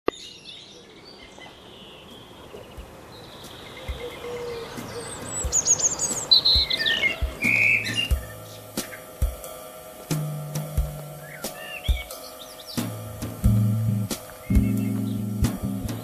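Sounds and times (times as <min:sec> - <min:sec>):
bright whistled bird calls: 0:00.1 - 0:09.2, 0:11.1 - 0:13.0, 0:14.4 - 0:16.0
songbirds singing and chirping: 0:00.1 - 0:09.2, 0:11.1 - 0:12.9, 0:13.5 - 0:16.0
steady outdoor hiss: 0:00.1 - 0:16.0
soft low thumps: 0:03.8 - 0:04.2, 0:12.8 - 0:16.0.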